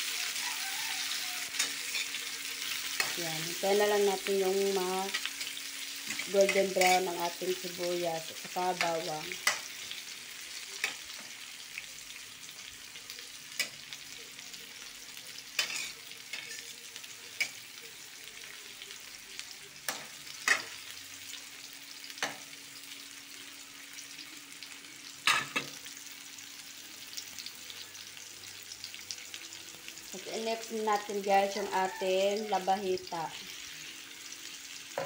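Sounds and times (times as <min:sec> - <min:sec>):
vegetables sizzling in hot oil: 0:00.0 - 0:35.0
metal spatula scraping a pan: 0:01.5 - 0:03.2, 0:15.6 - 0:16.7.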